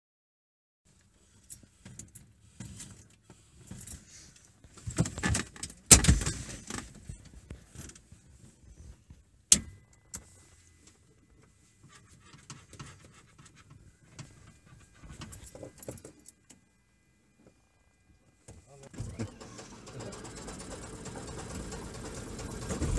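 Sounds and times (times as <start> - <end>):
faint steady high tone: 13.8 - 18.9.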